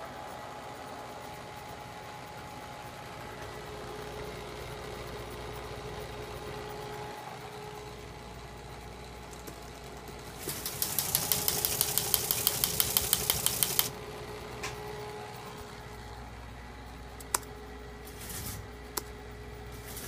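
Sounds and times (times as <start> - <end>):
teletype motor humming: 0.2 - 16.0
teletype type strikes clattering: 10.4 - 13.9.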